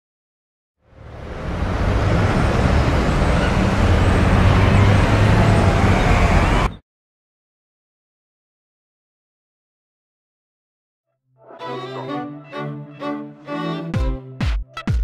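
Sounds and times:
rumble of passing vehicles: 0.8s - 6.8s.

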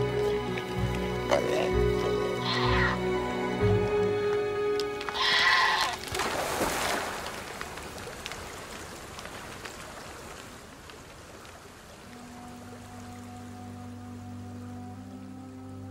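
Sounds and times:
animal bleating cry: 1.3s - 3.0s, 5.1s - 6.1s.

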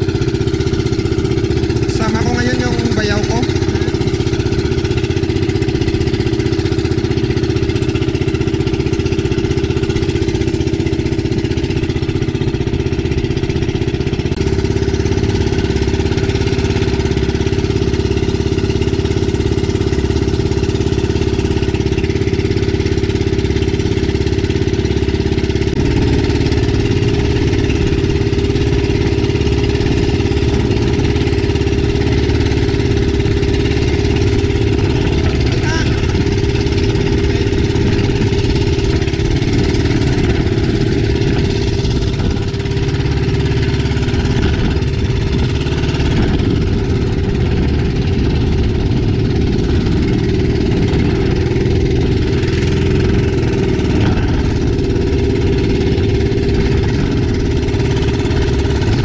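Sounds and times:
small boat engine running: 0.0s - 59.0s
wind noise: 23.8s - 59.0s.

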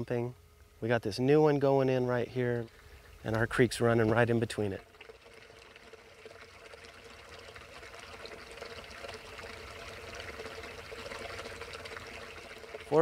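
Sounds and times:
water pouring over rocks: 2.6s - 13.0s.

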